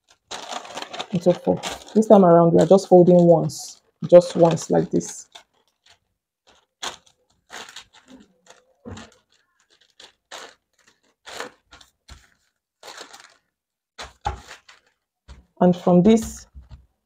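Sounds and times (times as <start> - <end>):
paper rustling and crinkling: 0.0 - 15.6.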